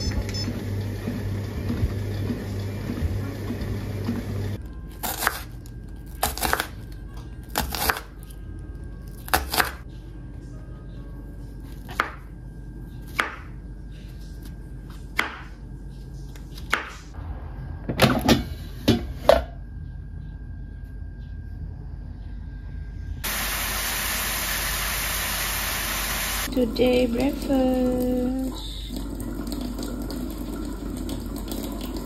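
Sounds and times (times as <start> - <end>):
food sizzling in a pan: 23.2 - 28.8.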